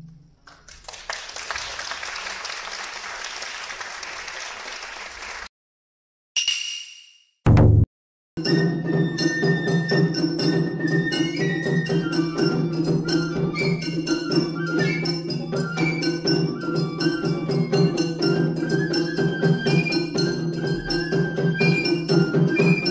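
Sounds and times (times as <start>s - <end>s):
fast drum strikes: 7.5s - 7.9s
bamboo flutes melody: 8.4s - 22.9s.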